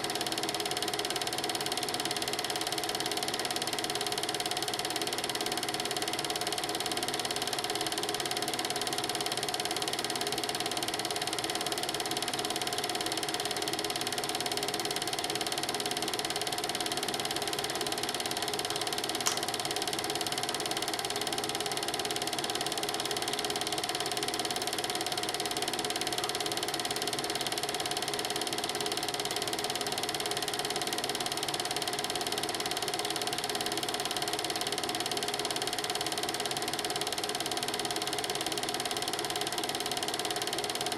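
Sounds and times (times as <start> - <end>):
film projector rattling: 0.1 - 40.9
sharp click: 19.2 - 19.6.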